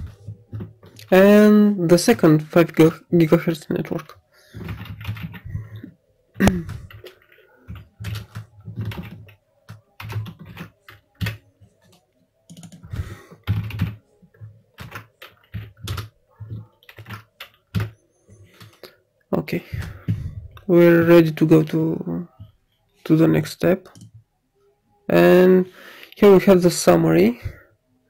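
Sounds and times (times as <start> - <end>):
computer keyboard typing: 4.0 - 5.9, 6.5 - 18.9.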